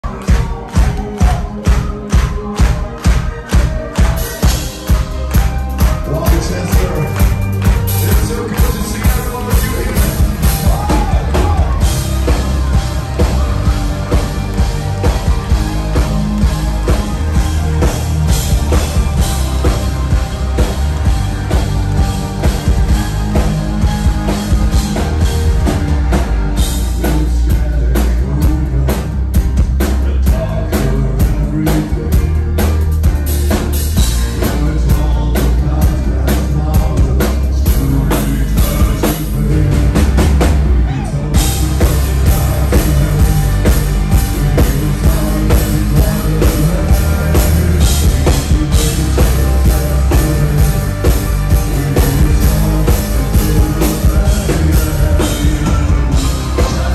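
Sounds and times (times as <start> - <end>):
bass guitar: 0.0 - 56.9
drums: 0.0 - 56.9
electric guitars: 0.0 - 56.9
keyboards: 0.0 - 56.9
person singing: 0.0 - 56.9.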